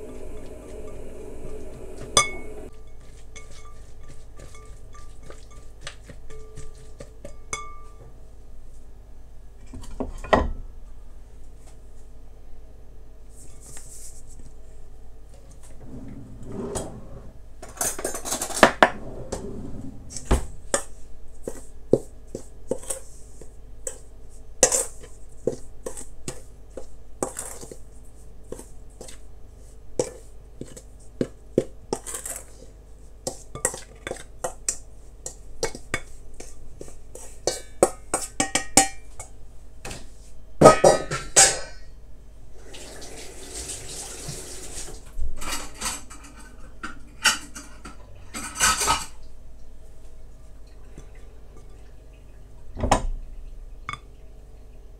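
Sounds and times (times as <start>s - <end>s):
utensils clinking against dishes: 2.0s - 8.0s, 45.4s - 49.2s.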